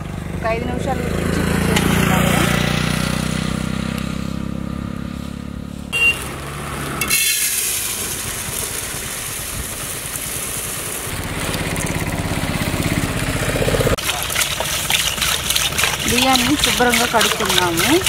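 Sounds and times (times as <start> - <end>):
rice grains pouring into a pot: 7.1 - 10.8.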